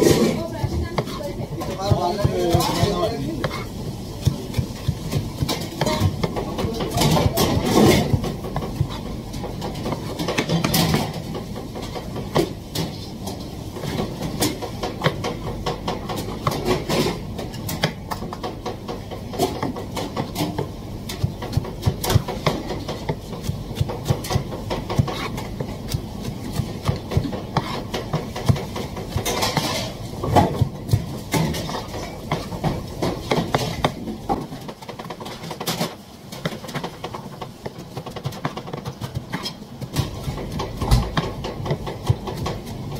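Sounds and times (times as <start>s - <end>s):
knife chopping on cutting board: 1.8s - 11.2s, 17.7s - 36.9s.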